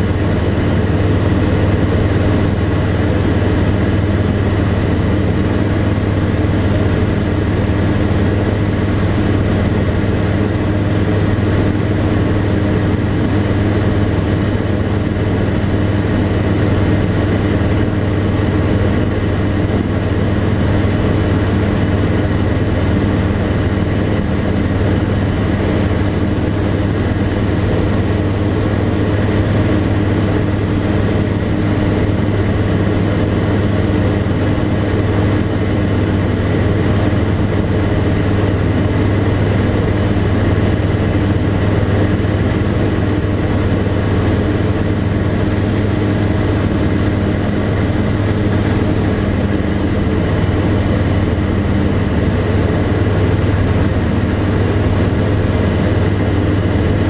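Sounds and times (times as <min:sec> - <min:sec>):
light aircraft engine drone: 0:00.0 - 0:57.0.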